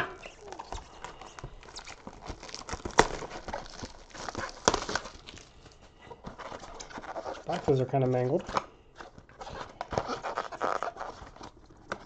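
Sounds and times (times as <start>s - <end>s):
cardboard snapping: 0.0s - 5.4s
cardboard rustling and scraping: 0.0s - 12.0s.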